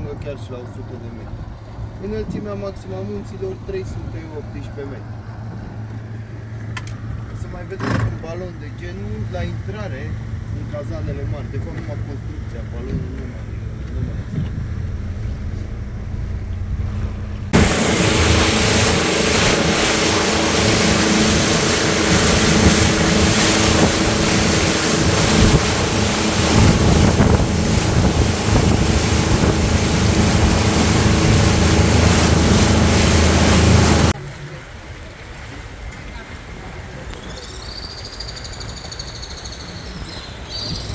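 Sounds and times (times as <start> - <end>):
motorboat engine running: 0.0 - 37.1
wind buffeting microphone: 9.5 - 34.2
rushing water: 17.5 - 38.0.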